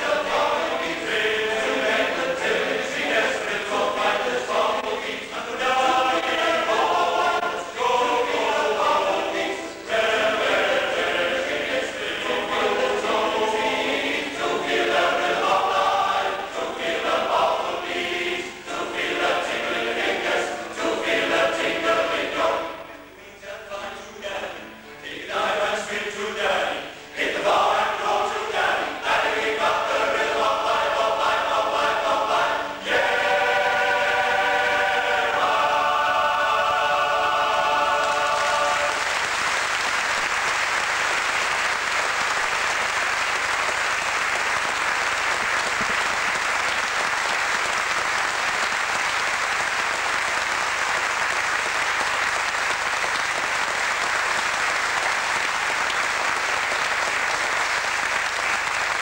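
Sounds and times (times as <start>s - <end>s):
male choir singing: 0.0s - 39.2s
audience applauding: 37.9s - 59.0s.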